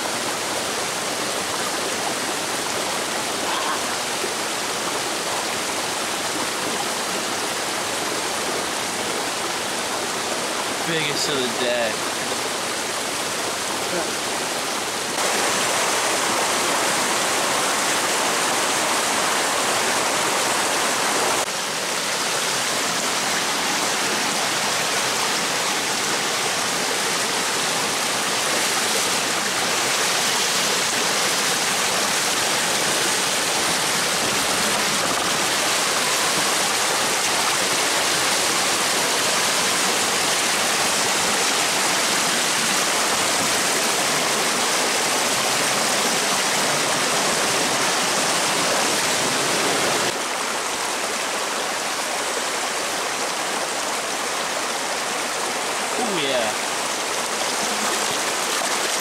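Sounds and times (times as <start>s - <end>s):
brook rushing over rocks: 56.0s - 59.0s.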